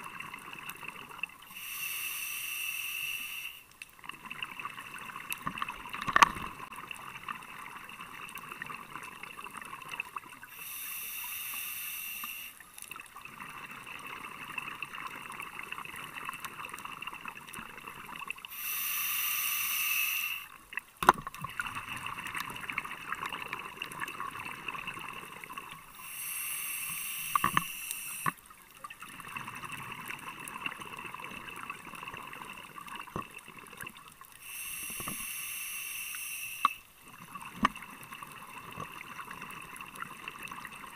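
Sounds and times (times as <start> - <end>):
underwater crackle with clicks: 3.6 - 10.5, 12.2 - 18.5, 20.5 - 25.9, 26.8 - 35.3, 36.6 - 40.9.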